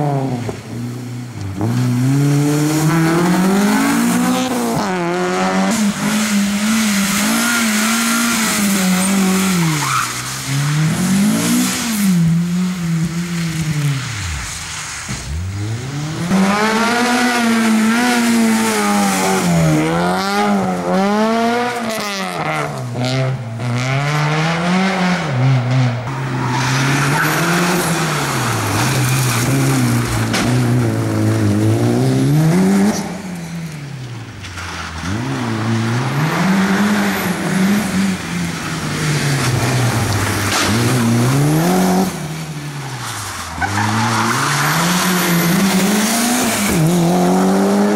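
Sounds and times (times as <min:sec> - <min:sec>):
rally car engines revving: 0:00.0 - 0:47.9
tyre squeal: 0:07.4 - 0:10.5.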